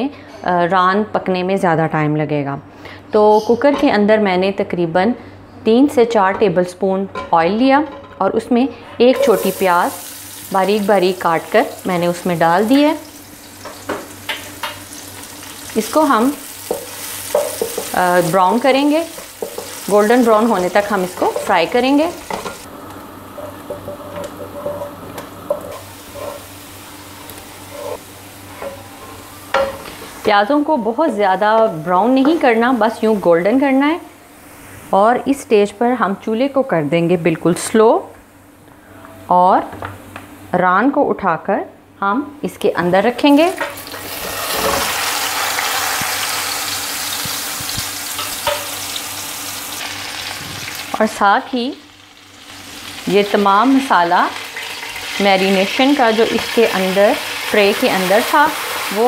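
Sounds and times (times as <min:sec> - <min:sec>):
onions sizzling in hot oil: 0:09.2 - 0:34.6, 0:43.2 - 0:59.0
wooden spatula scraping pot: 0:23.4 - 0:26.5, 0:27.6 - 0:29.3.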